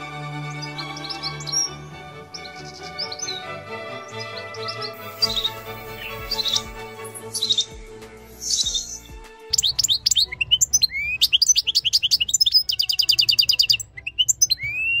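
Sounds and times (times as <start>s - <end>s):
finch singing: 0.4s - 7.8s, 8.4s - 15.0s.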